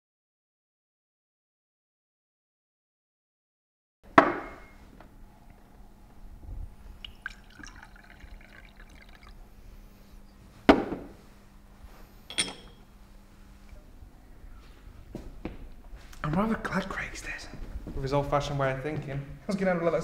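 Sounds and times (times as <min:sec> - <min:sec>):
decanter set down knock: 0:04.2 - 0:04.7, 0:10.7 - 0:11.2
liquid pouring into glass: 0:07.0 - 0:09.4
glass stopper clink: 0:12.3 - 0:12.8.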